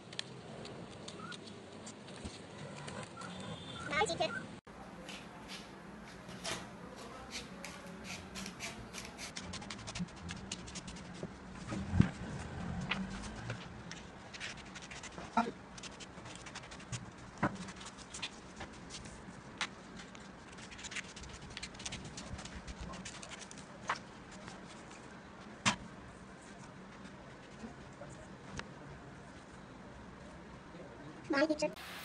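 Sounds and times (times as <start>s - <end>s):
scissors snipping paper: 7.3s - 11.2s, 19.6s - 24.9s
paper rustling: 8.4s - 25.6s.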